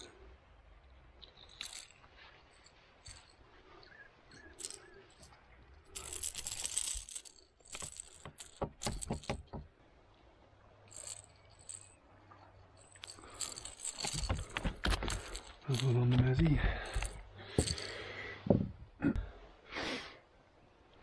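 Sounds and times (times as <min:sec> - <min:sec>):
pliers and hooks clinking: 0:04.3 - 0:09.5, 0:10.9 - 0:18.0.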